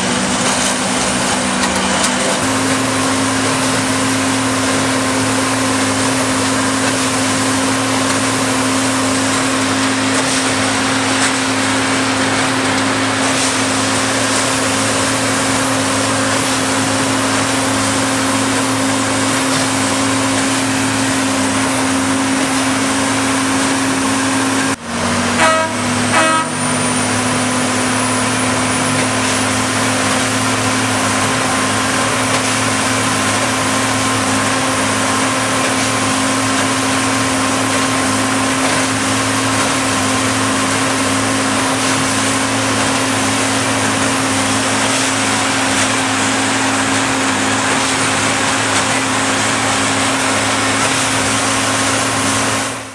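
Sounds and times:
steady engine hum: 0.0s - 52.9s
short horn toots: 25.4s - 26.8s.

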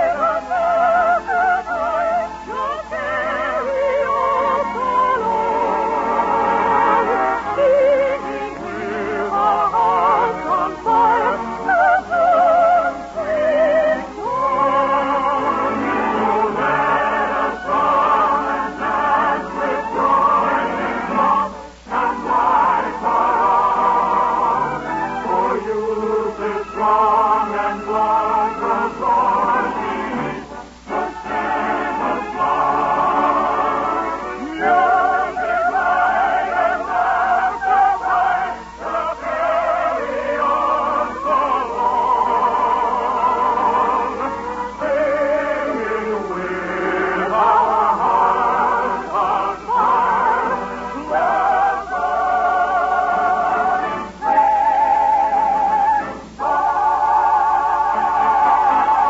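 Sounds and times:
operetta singing with vibrato: 0.0s - 59.0s.

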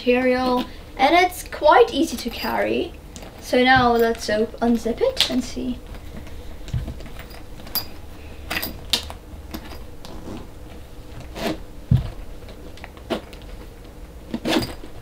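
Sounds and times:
bag zipper zipping: 10.0s - 10.6s, 11.2s - 12.2s, 14.3s - 15.0s.

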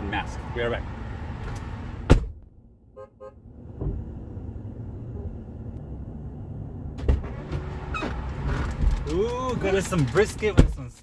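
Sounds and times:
truck door thumping shut: 2.0s - 2.4s
muffled car horn beeps: 3.0s - 3.4s.

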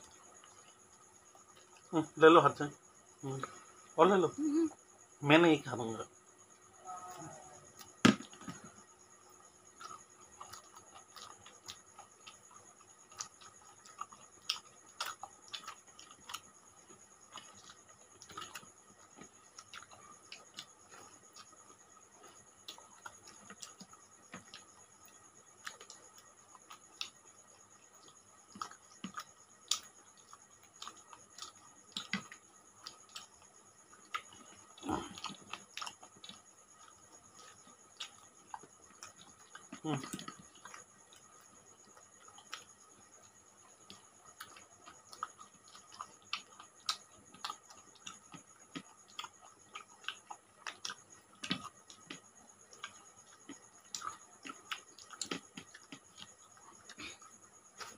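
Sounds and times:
fingers and chewing eating sounds: 9.7s - 57.9s.

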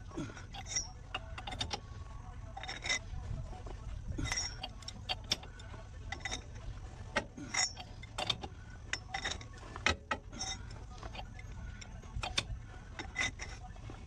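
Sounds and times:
hand ratchet clicking: 0.3s - 1.8s, 4.2s - 6.5s, 7.1s - 14.0s.

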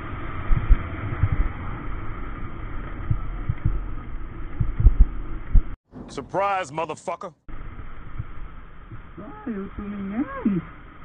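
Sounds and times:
wind buffeting microphone: 0.0s - 1.7s.

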